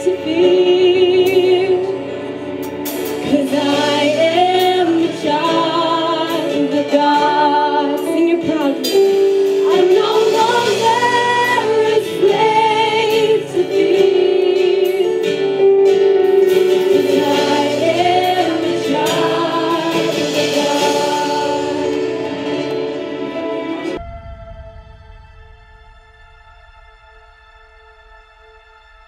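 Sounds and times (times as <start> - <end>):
women singing worship song: 0.0 - 2.0, 3.2 - 15.5, 16.8 - 22.7.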